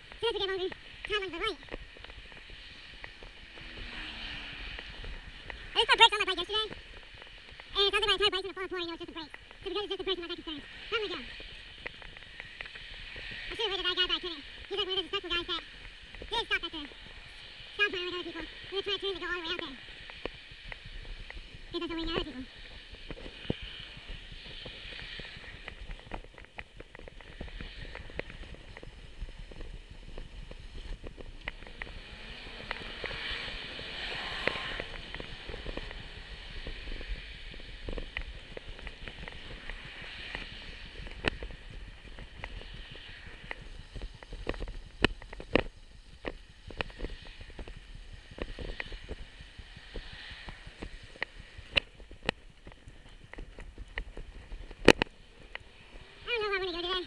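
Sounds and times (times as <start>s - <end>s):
bicycle rattling over pavement: 19.0s - 56.8s.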